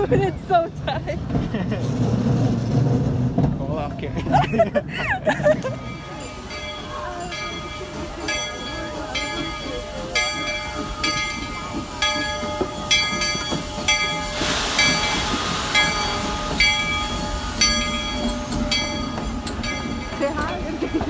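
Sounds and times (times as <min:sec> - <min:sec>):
locomotive bell ringing: 0:05.4 - 0:21.0
steam hissing: 0:05.9 - 0:20.2.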